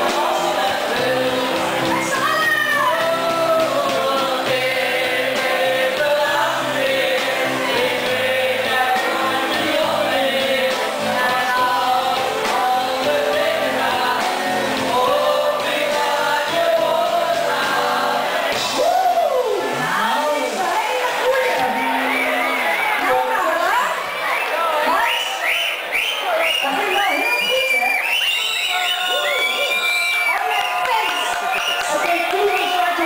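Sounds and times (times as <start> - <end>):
voices singing together: 0.0 - 24.5
live music: 0.0 - 33.0.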